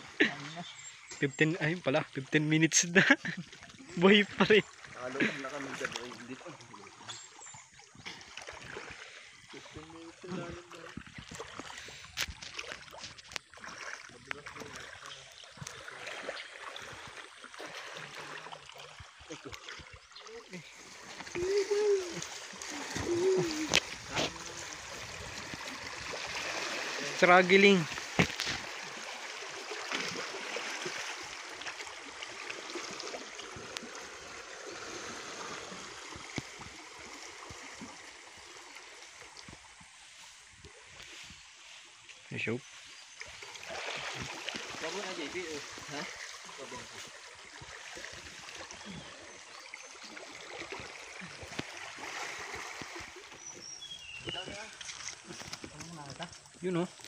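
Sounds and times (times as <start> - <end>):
stream water rushing and splashing: 0.0 - 57.0.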